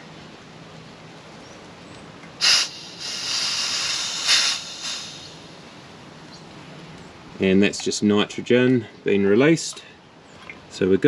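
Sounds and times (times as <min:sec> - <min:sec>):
pressurised gas hissing from valve: 0:02.4 - 0:05.7.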